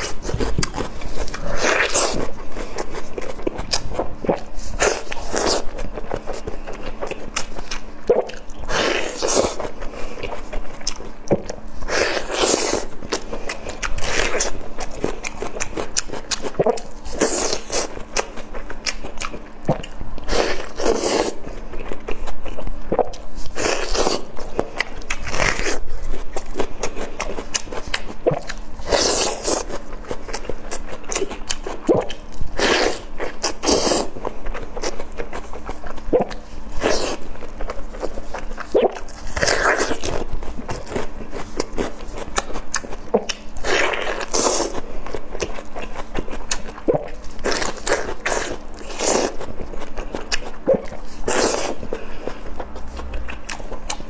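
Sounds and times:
biting and chewing: 0:00.0 - 0:54.0.

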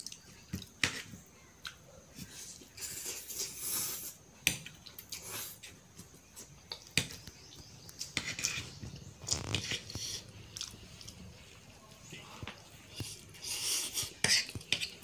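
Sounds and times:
person slurping and chewing noodles: 0:02.2 - 0:05.8, 0:08.0 - 0:11.8, 0:12.7 - 0:15.0.

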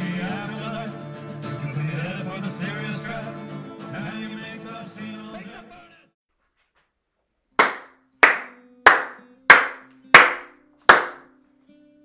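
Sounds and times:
man clapping hands: 0:07.6 - 0:11.3.

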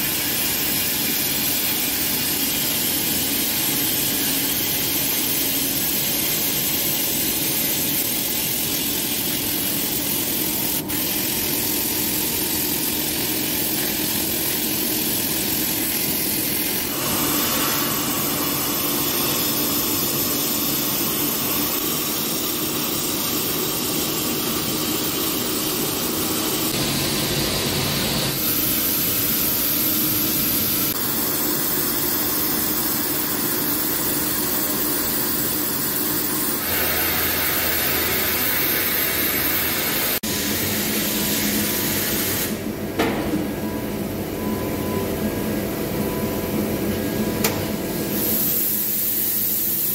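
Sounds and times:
sandblasting nozzle hissing: 0:00.0 - 0:42.7, 0:48.0 - 0:49.9.

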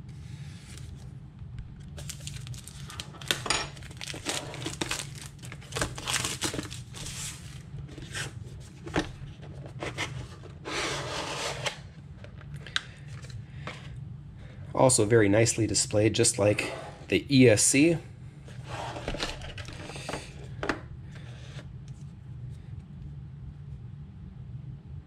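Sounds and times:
cellophane crinkling and tearing: 0:01.8 - 0:08.2.

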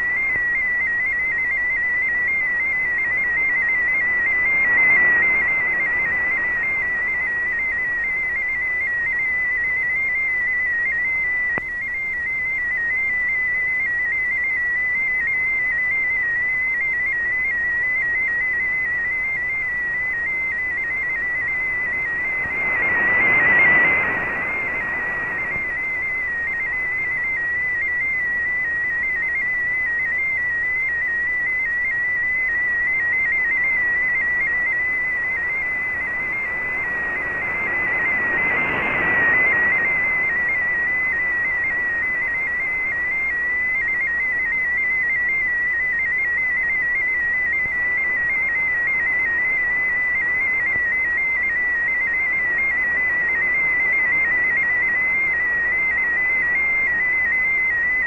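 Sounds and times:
receiver hiss: 0:00.0 - 0:58.0
warbling digital signal tone: 0:20.8 - 0:26.9.

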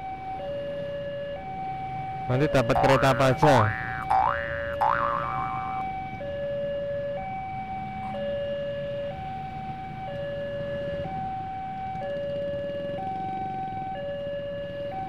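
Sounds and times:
level crossing two-tone warning siren: 0:02.3 - 0:05.8.

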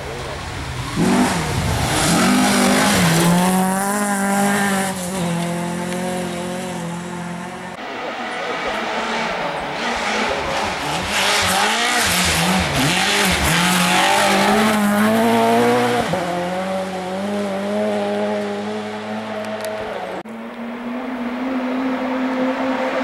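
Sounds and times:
car engine approaching: 0:00.0 - 0:23.0
rally car engine revving: 0:00.0 - 0:23.0
tyre and gravel rush: 0:00.2 - 0:06.5.

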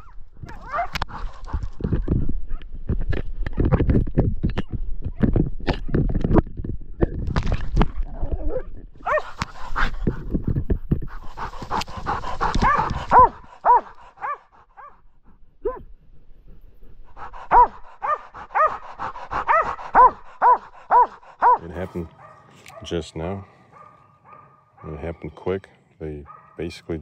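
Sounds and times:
dog barking: 0:00.0 - 0:01.0, 0:09.0 - 0:09.4, 0:12.4 - 0:15.0, 0:17.5 - 0:18.8, 0:19.4 - 0:25.1, 0:26.2 - 0:26.7
rustling and thumping through brush: 0:09.0 - 0:13.6.

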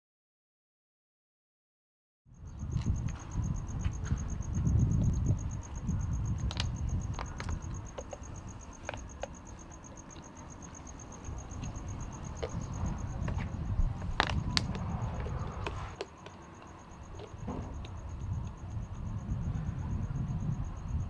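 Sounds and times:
low rumble: 0:10.8 - 0:16.0.

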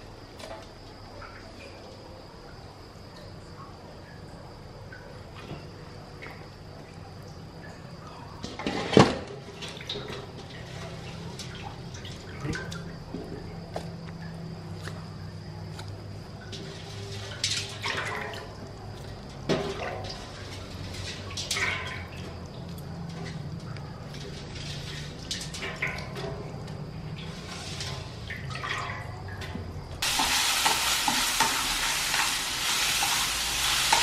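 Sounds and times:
wet splashes and drips: 0:09.5 - 0:15.1, 0:15.7 - 0:34.0.

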